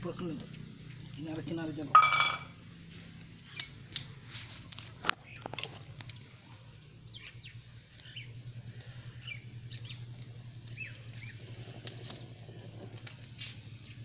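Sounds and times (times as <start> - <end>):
wood fire crackling clicks: 3.1 - 6.4, 7.2 - 14.0
small birds chirping: 4.9 - 14.0.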